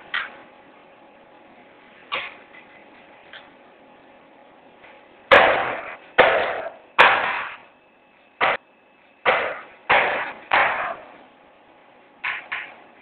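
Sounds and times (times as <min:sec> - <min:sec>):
hard knocks: 0:05.3 - 0:07.6, 0:09.2 - 0:11.1.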